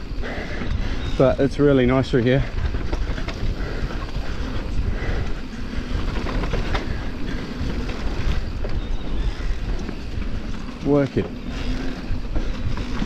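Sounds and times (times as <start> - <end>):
bike rattling: 0.0 - 13.0
bike tyres rolling over dirt: 0.0 - 13.0.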